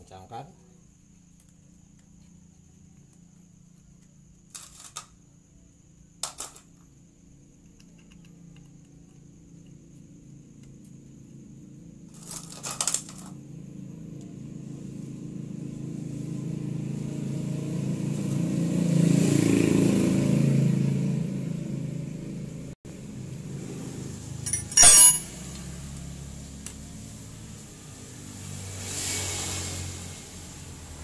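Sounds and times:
vehicle passing by: 14.4 - 24.4, 25.3 - 31.0
metal tools clinking: 24.5 - 25.3.

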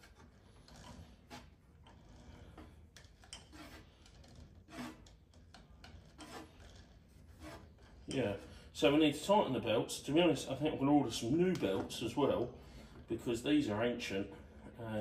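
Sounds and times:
hand rubbing belts: 0.0 - 8.7.

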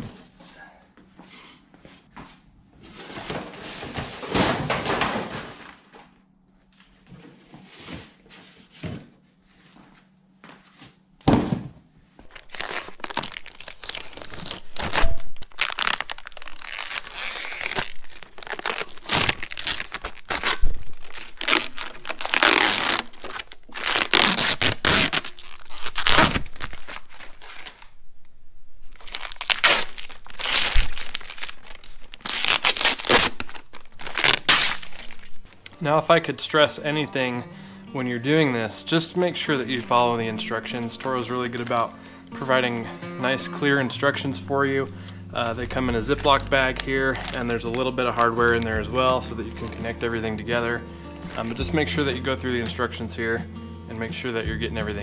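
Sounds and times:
thump: 11.3 - 11.8
plastic wrapping crinkling: 12.2 - 28.0, 28.8 - 35.9, 39.0 - 42.8, 45.3 - 53.4.

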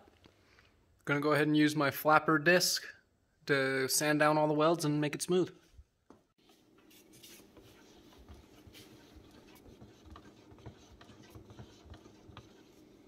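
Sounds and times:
stick stirring paint in metal can: 6.4 - 13.0.

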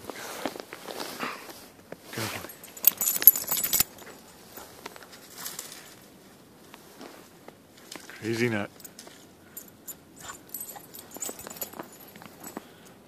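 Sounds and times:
collar tags jingling: 2.2 - 5.6, 8.2 - 13.0.

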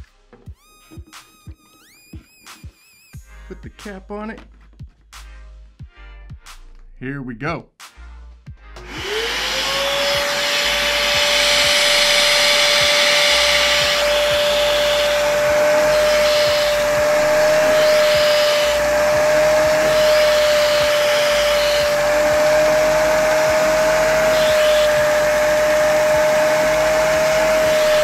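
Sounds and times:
spot cleaner whining with suction: 8.8 - 28.0.

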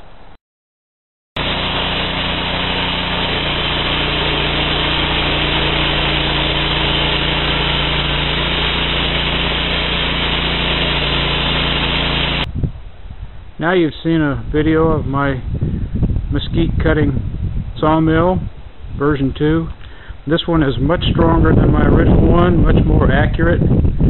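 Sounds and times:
band blade sawing log: 1.4 - 12.5
sawmill engine droning: 1.4 - 12.5.

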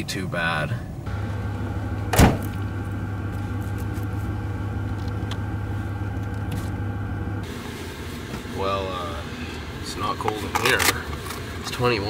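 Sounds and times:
pickup truck engine idling: 1.1 - 10.1
window shutting bang: 2.0 - 2.6.

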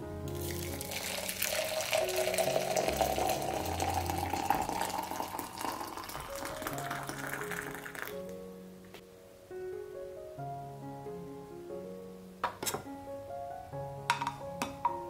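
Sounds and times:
water pouring into teapot: 0.3 - 8.3.

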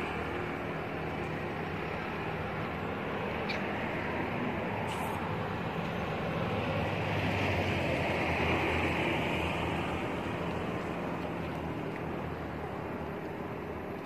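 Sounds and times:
hiss: 4.9 - 5.2.

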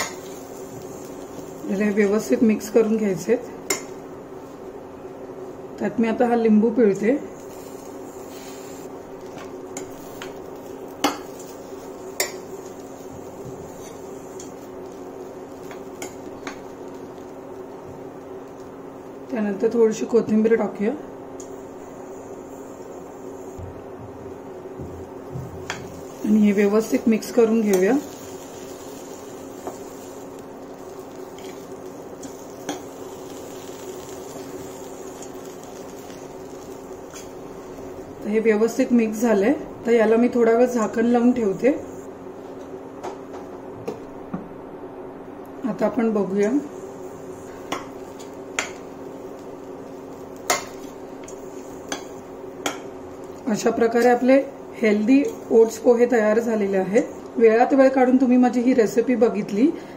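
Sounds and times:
steady hum: 0.0 - 59.9
spatula scraping and squishing food: 11.0 - 14.6
spatula knocking pan: 51.9 - 52.9.

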